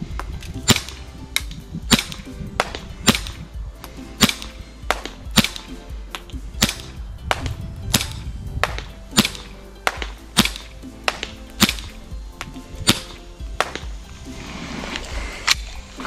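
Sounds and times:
airsoft pistol shots: 0.6 - 3.5, 4.2 - 14.0
pistol slide snapping: 4.2 - 13.9.

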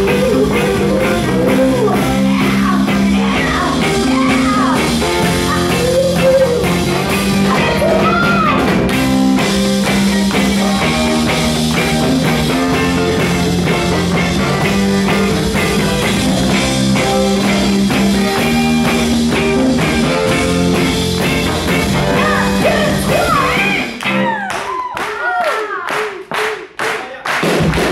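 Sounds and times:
woman singing lead: 0.0 - 8.8, 22.0 - 25.8
live soul band playing: 0.0 - 24.4.

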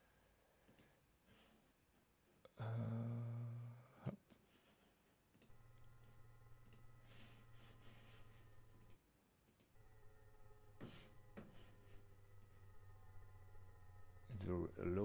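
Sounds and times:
small clicks: 0.6 - 0.9, 5.3 - 8.0, 8.6 - 9.7
loud low hum: 5.5 - 9.0, 9.8 - 15.0
synthesizer drone: 5.5 - 9.0, 9.8 - 15.0.

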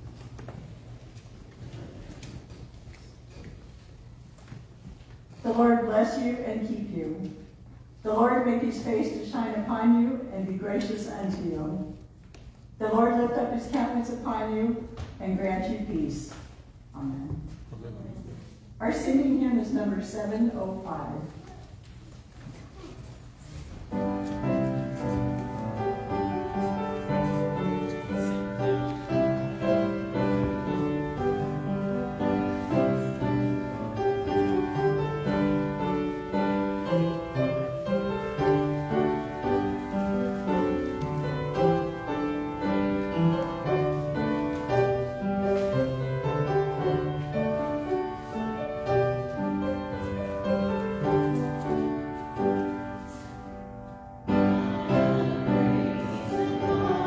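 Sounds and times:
hymn played on keyboard: 54.1 - 57.0.

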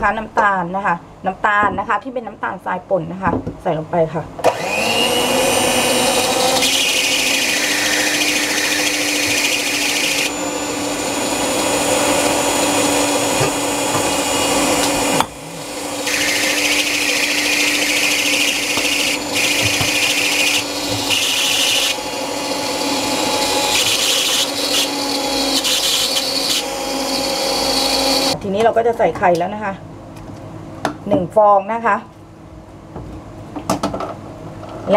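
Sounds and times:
electric hand mixer running: 4.4 - 28.4.

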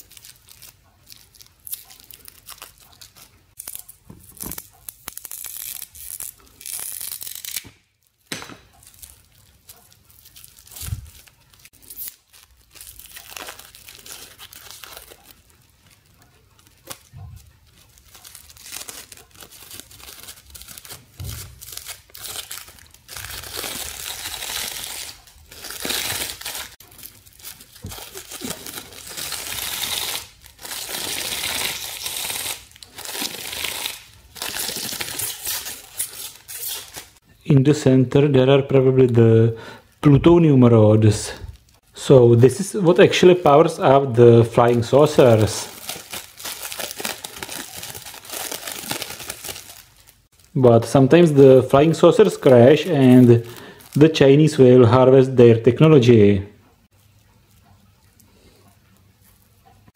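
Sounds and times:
foil and plastic film tearing: 0.0 - 37.2, 44.3 - 54.2.

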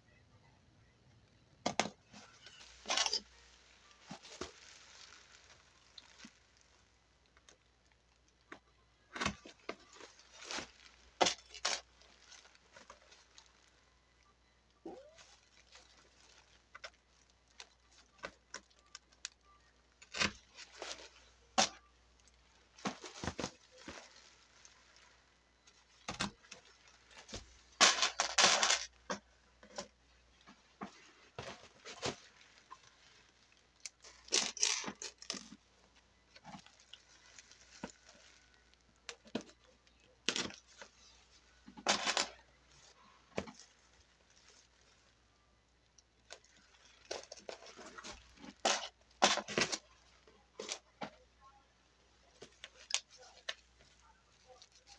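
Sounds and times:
plastic sheeting crinkling: 2.0 - 8.2, 9.2 - 13.8, 14.9 - 29.2, 30.0 - 45.2, 52.0 - 54.9.

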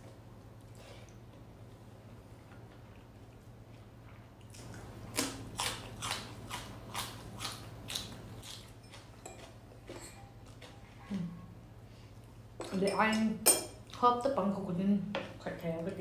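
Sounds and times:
person chewing crunchy food: 4.4 - 10.8.

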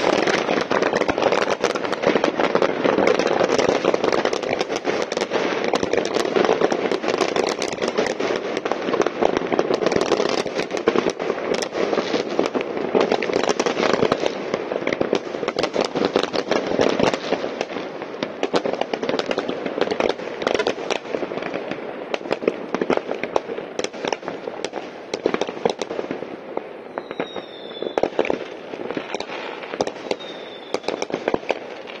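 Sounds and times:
fireworks crackling and banging: 0.0 - 32.0
falling firework whistles: 26.8 - 32.0.

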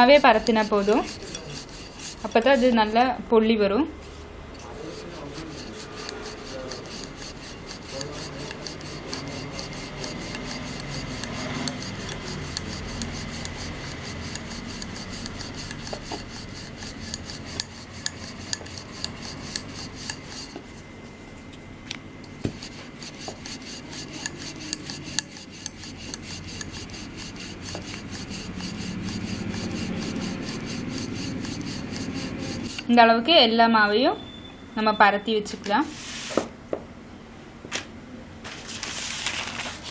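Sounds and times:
rolling pin rolling dough: 0.0 - 3.2, 4.0 - 21.4, 22.3 - 33.0.

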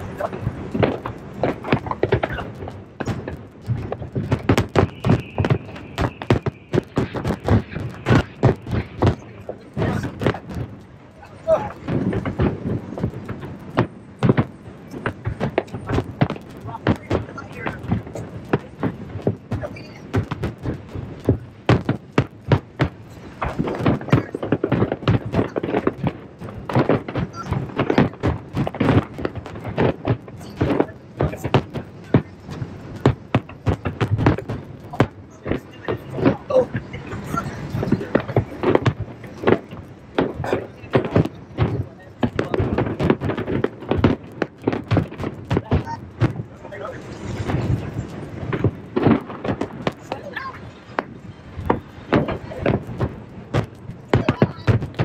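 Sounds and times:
firework shells bursting: 0.0 - 55.0
high whistle: 4.8 - 6.7.

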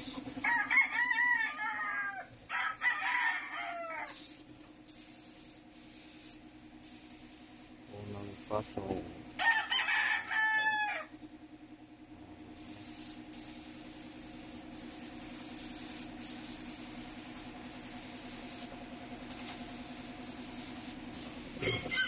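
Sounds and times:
paint spray gun hissing: 0.0 - 0.2, 3.4 - 9.0, 12.5 - 18.7, 19.3 - 21.8
low hum: 11.1 - 15.6.

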